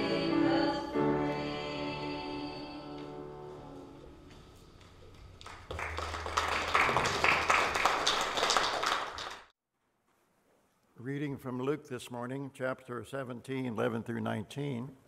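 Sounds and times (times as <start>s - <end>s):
congregation applauding: 5.1s - 9.5s.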